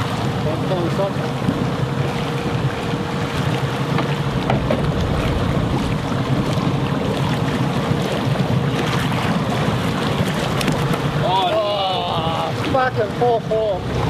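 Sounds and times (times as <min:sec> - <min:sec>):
boat engine running: 0:00.0 - 0:14.0
water rushing past hull: 0:00.0 - 0:14.0
wind on microphone: 0:01.3 - 0:11.2.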